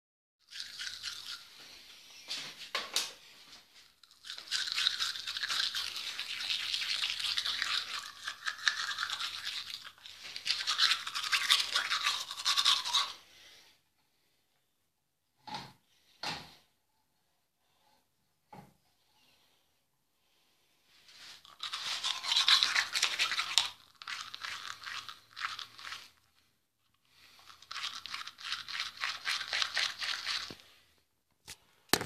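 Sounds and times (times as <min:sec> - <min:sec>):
toothbrush scrubbing teeth: 0:00.4 - 0:02.0, 0:03.8 - 0:13.2, 0:21.3 - 0:30.8.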